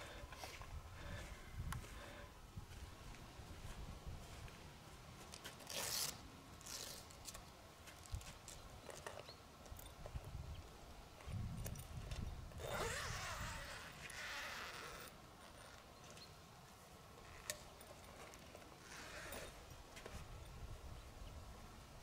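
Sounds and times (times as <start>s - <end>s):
low wind rumble on microphone: 0.0s - 4.6s, 9.9s - 13.9s
zip-like scraping and rustling: 5.5s - 7.4s, 12.6s - 15.9s, 17.2s - 20.3s.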